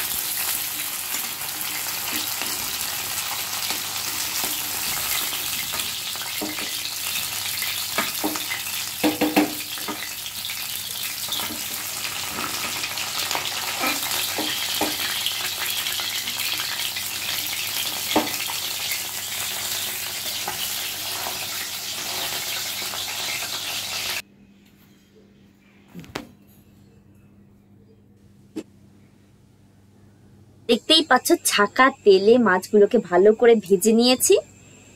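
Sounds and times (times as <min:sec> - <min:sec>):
fish frying in hot oil: 0:00.0 - 0:24.2.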